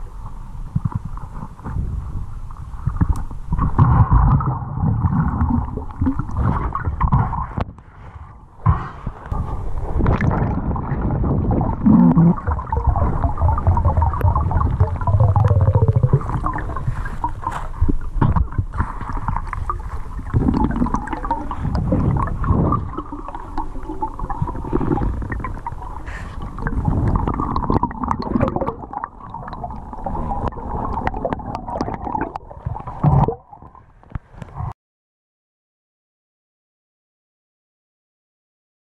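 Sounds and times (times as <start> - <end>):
muffled underwater river water: 0.0 - 34.7
gurgling air bubbles: 2.9 - 7.6, 9.3 - 33.8.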